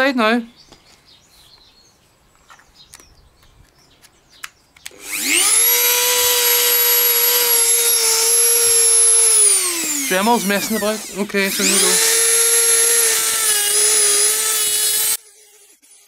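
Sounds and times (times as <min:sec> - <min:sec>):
rotary tool whining: 0:04.8 - 0:16.0.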